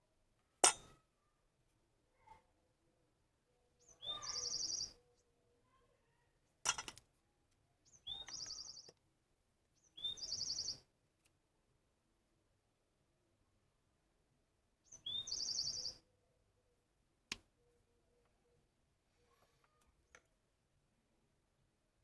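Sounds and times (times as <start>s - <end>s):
songbird singing: 2.7s - 6.1s, 7.5s - 9.0s, 9.6s - 10.9s, 14.7s - 19.0s.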